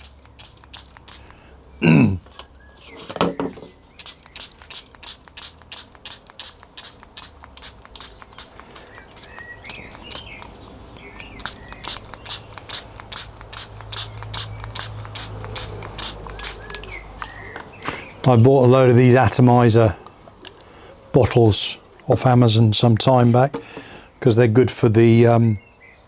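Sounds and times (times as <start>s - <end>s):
spray bottle misting: 0.0s - 1.4s, 4.0s - 17.9s.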